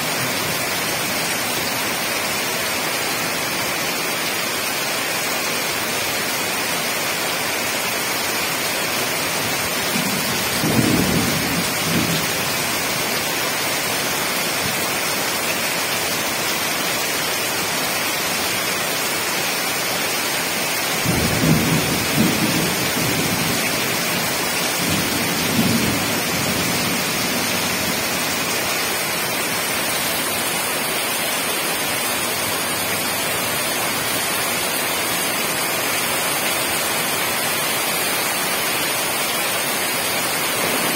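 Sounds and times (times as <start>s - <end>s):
heavy rain falling: 0.0s - 40.9s
thunder rumbling: 40.5s - 40.9s.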